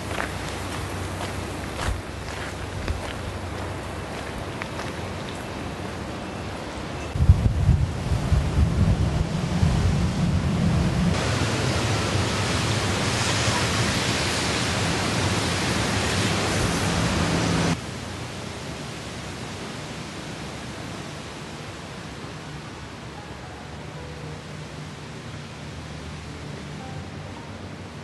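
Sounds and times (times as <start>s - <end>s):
wind rumbling on microphone: 0.0s - 6.1s, 7.1s - 18.7s
heavy rain hissing: 0.0s - 27.5s.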